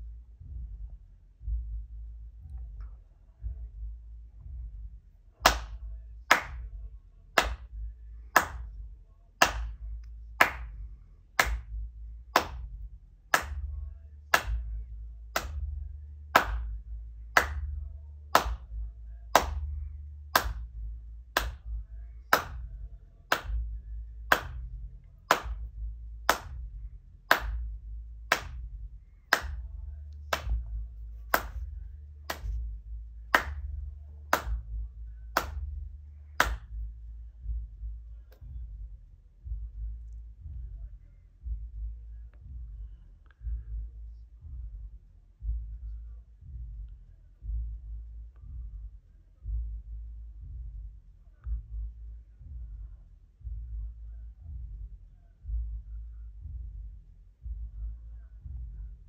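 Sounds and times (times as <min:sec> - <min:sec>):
person clapping hands: 0:05.4 - 0:06.8, 0:07.4 - 0:08.8, 0:09.4 - 0:10.8, 0:11.4 - 0:15.7, 0:16.3 - 0:19.7, 0:20.3 - 0:22.7, 0:23.3 - 0:23.7, 0:24.3 - 0:26.6, 0:27.3 - 0:28.7, 0:29.3 - 0:32.7, 0:33.3 - 0:36.9.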